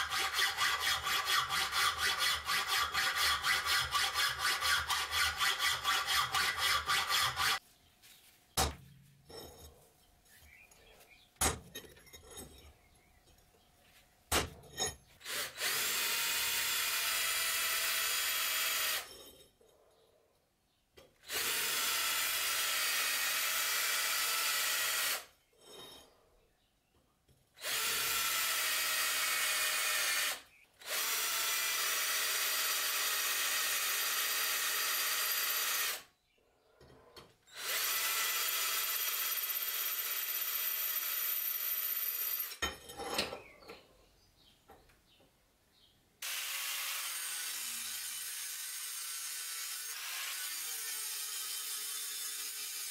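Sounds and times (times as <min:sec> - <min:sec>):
angle grinder: 0:00.0 - 0:07.6, 0:15.2 - 0:19.2, 0:46.2 - 0:52.9
electric drill boring steel: 0:00.0 - 0:07.6, 0:15.2 - 0:19.2, 0:21.2 - 0:25.3, 0:27.6 - 0:36.1, 0:37.5 - 0:42.6, 0:46.2 - 0:52.9.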